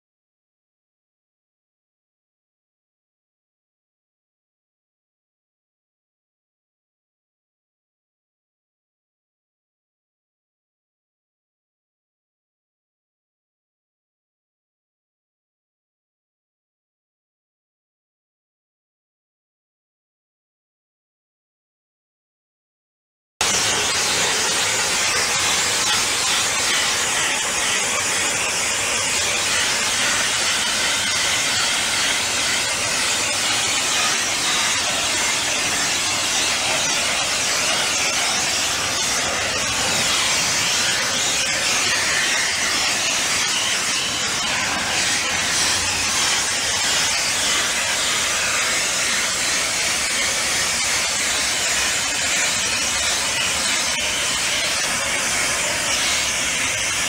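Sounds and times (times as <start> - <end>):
blasting nozzle loud hiss: 23.4 - 57.0.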